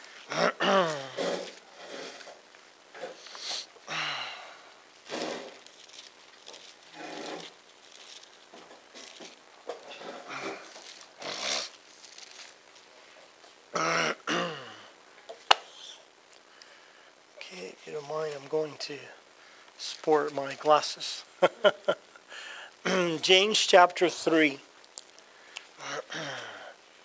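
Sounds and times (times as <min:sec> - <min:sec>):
man grunting and humming: 0:00.3 - 0:01.5, 0:25.8 - 0:26.7
papers being handled: 0:05.0 - 0:13.5.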